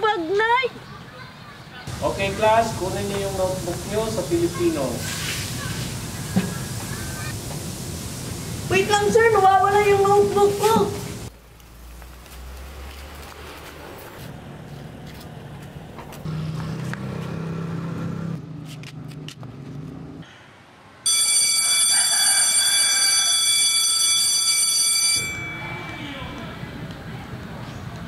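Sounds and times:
school bell ringing: 21.0 - 26.9.

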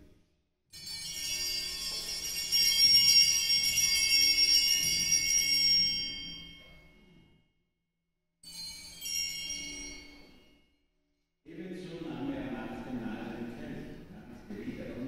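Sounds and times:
small hand bells ringing: 0.8 - 6.6, 8.4 - 10.3.

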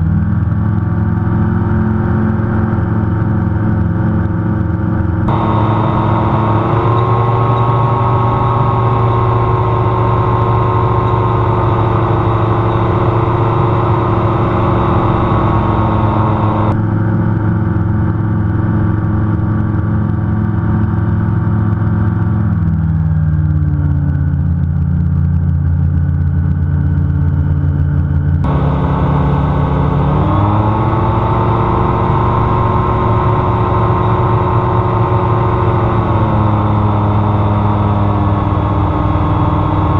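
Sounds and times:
gyroplane engine and propeller: 0.0 - 39.9.

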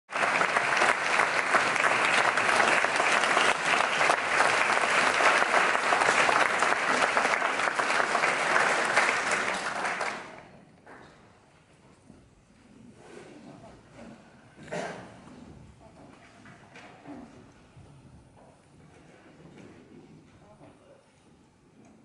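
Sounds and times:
audience applauding: 0.1 - 10.4.

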